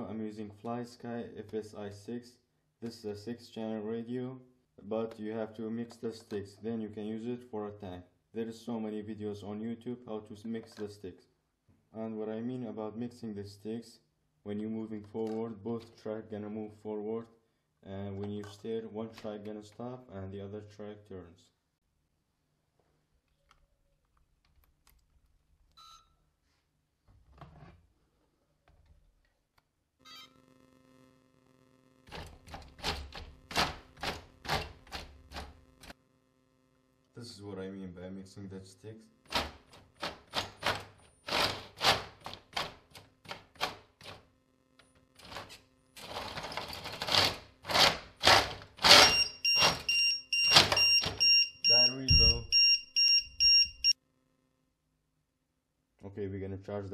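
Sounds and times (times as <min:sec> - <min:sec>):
two-tone electronic beeping: 0:49.0 - 0:54.0.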